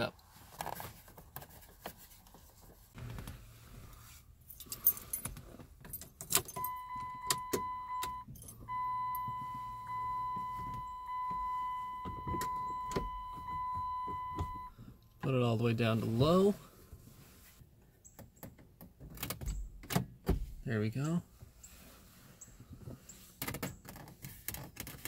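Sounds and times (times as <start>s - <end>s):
keys jingling: 4.4s - 7.4s
electronic warning chime beep: 6.6s - 14.7s.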